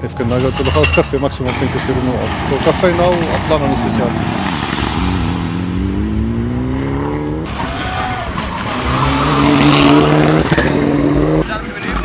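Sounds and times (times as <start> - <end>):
rally car engine accelerating: 2.7 - 11.7.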